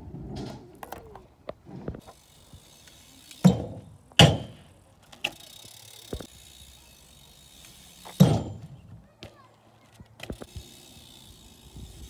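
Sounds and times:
bike hitting concrete ledge: 2.1 - 6.5, 7.6 - 9.4.

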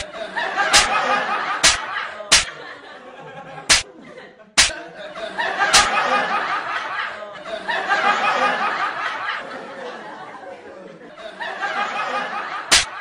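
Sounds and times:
group laughing: 0.0 - 13.0
open-hand slaps to the face: 0.7 - 0.9, 1.6 - 2.5, 5.7 - 5.9, 12.7 - 13.0.

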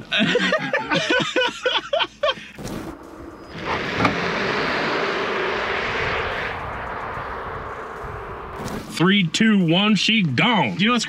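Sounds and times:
laughter: 0.0 - 2.6
steady rushing noise: 2.8 - 10.8.

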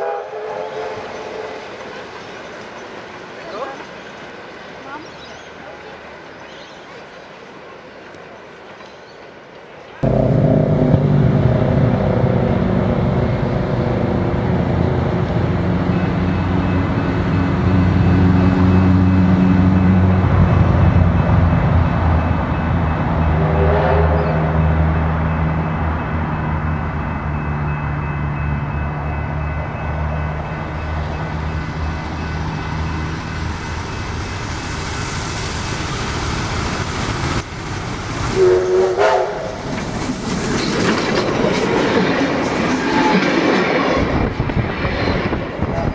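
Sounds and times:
steam locomotive whistle: 0.0 - 1.6, 23.4 - 24.6, 38.3 - 39.6
low train rumble: 0.0 - 45.9.

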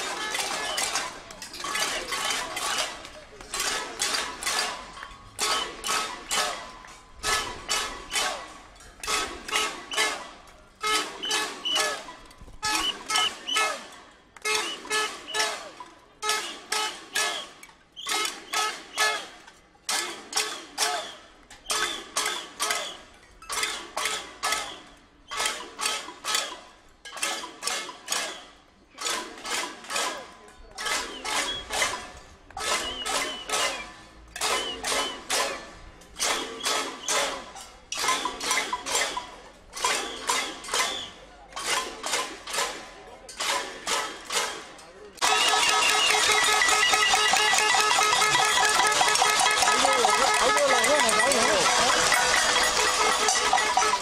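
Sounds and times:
pots and pans clanging: 30.8 - 35.6, 45.2 - 54.0.

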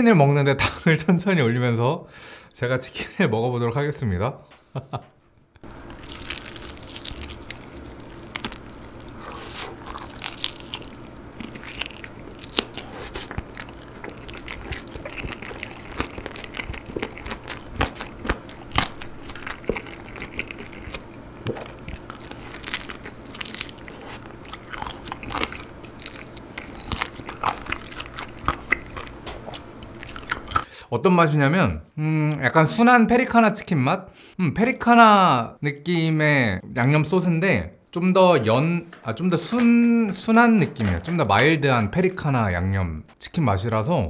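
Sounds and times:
crunchy fried chicken chewing: 5.6 - 30.7.

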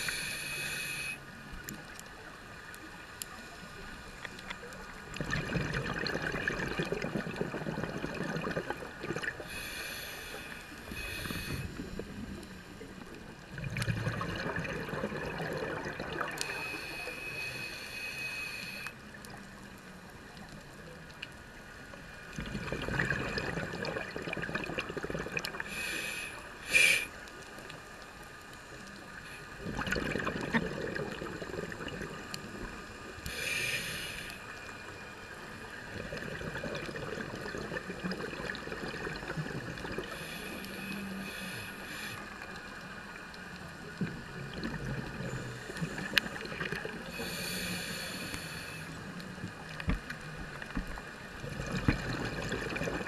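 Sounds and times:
regulator hissing inhale: 0.0 - 1.4, 9.4 - 13.1, 16.2 - 19.1, 25.6 - 27.3, 32.9 - 34.7, 40.0 - 42.8, 45.3 - 49.2
exhaled bubbles rushing: 5.1 - 9.4, 13.5 - 16.4, 22.3 - 25.7, 29.6 - 32.3, 35.9 - 40.1, 44.4 - 47.1, 51.4 - 53.0.

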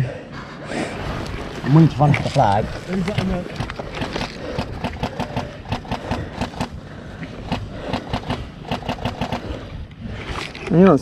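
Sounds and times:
sharp clicks and knocks: 3.1 - 6.8, 7.5 - 9.6.

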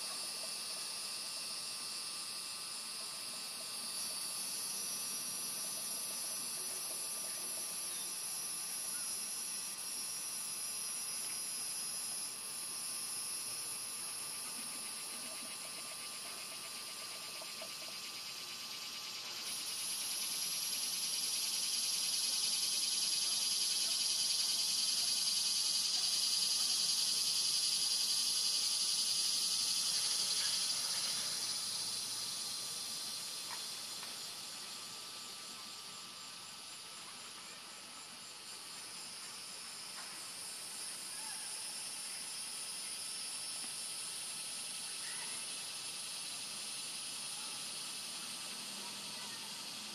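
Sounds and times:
insects buzzing: 0.0 - 49.9.

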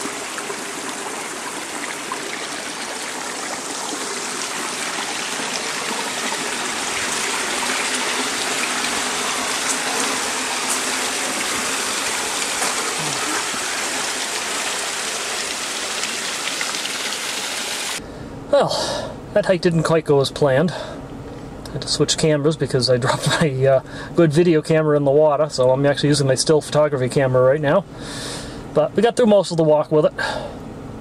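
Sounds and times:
waterfall rushing water: 0.0 - 18.0.

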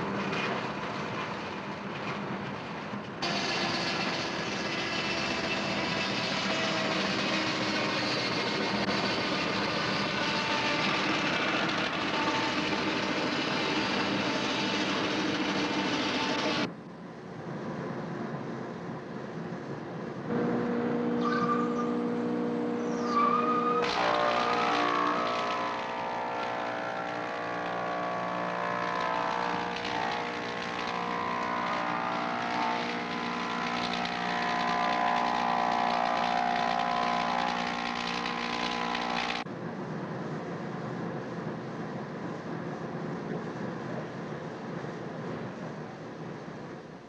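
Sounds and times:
circular saw cutting timber: 3.2 - 16.7, 20.3 - 39.5
machine hum: 3.2 - 16.7, 20.3 - 39.5
brief wavering whine: 20.3 - 39.4
machine starting up: 23.7 - 39.5.

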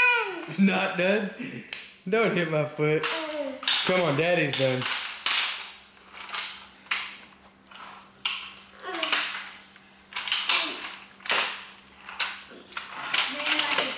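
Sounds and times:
toy roller skates clattering on floor: 3.0 - 13.9.

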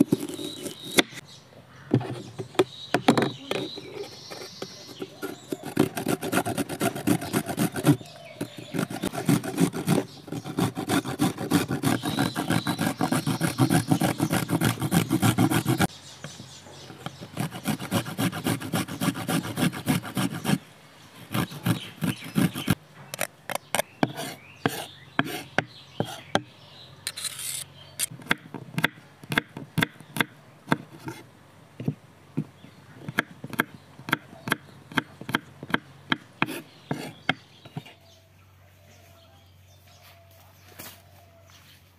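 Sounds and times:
garlic scraping on metal grater: 0.0 - 1.0, 3.7 - 15.9, 16.9 - 20.6, 21.3 - 22.8, 27.1 - 28.1
knife chopping on wooden board: 21.3 - 26.5, 28.2 - 31.2, 31.8 - 37.9.

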